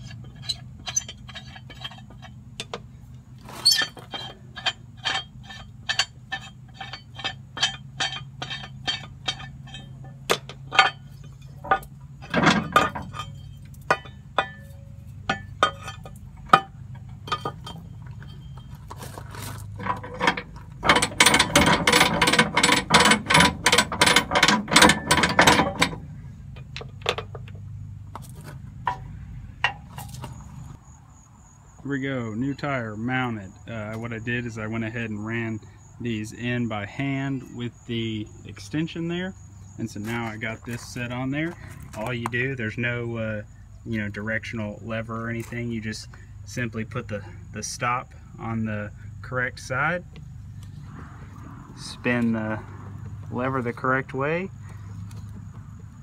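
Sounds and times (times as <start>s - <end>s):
metal winch clicking: 0.0s - 30.8s.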